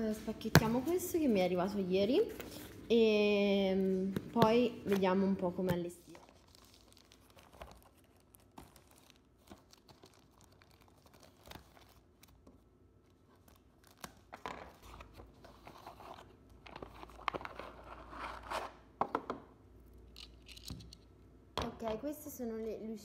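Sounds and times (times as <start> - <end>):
plastic packaging crinkling: 6.0 - 12.4.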